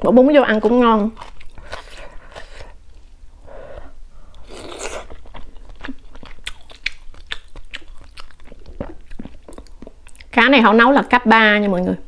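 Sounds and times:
wet chewing: 0.6s - 2.8s, 4.2s - 10.5s
person slurping: 3.5s - 6.0s.

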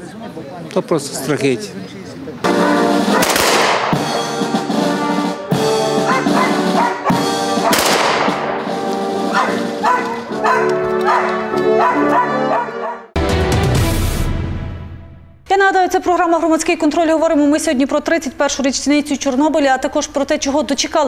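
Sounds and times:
music: 2.5s - 15.5s
rifle volleys with echo: 3.1s - 4.2s, 7.6s - 8.8s.

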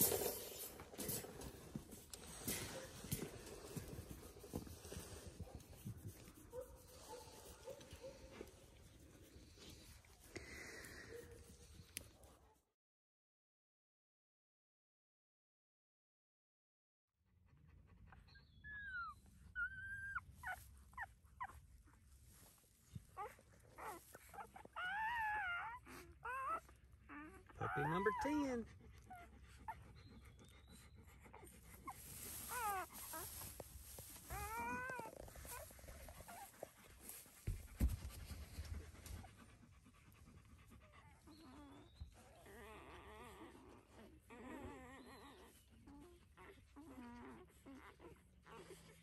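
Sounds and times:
dog whining and squealing: 18.1s - 21.6s, 22.9s - 36.6s, 40.9s - 49.0s.

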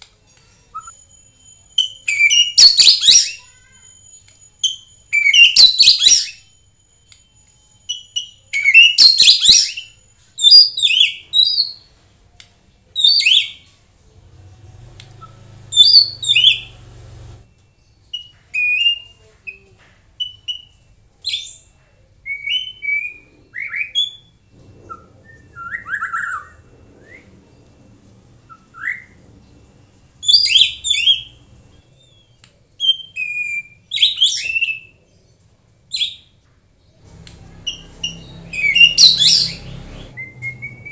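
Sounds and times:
thin steady high whistle: 0.7s - 10.4s, 23.1s - 33.9s
bird singing whistled phrases: 0.8s - 1.1s, 1.8s - 6.5s, 7.9s - 11.9s, 20.2s - 27.6s, 30.2s - 35.0s, 37.7s - 40.9s.

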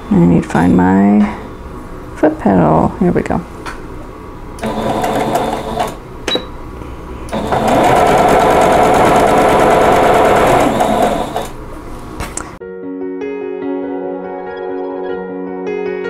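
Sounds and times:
electric sewing machine stitching: 4.6s - 6.0s, 7.3s - 11.6s.

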